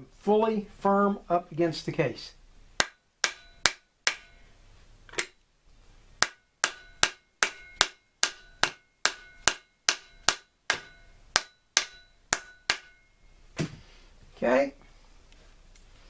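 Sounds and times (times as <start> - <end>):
mallet knocking on metal: 2.8 - 4.4, 6.2 - 13.1.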